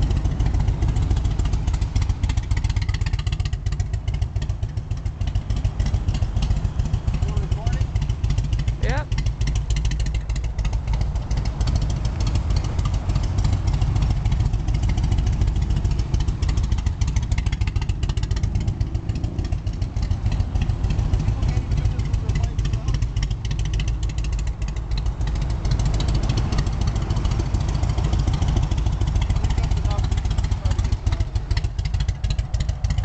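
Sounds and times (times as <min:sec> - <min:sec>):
motorcycle engine rumbling: 0:00.0 - 0:33.0.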